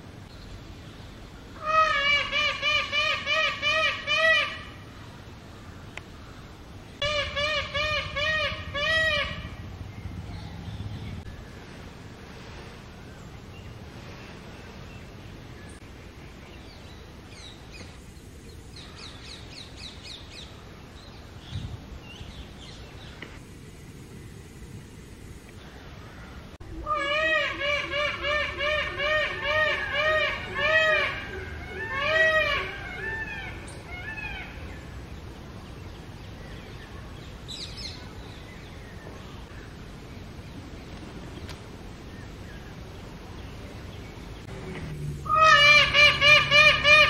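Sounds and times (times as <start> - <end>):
low background noise: 0.0 - 47.0
peacock wailing cries: 1.6 - 4.8, 7.0 - 9.6, 26.8 - 34.7, 45.3 - 47.0.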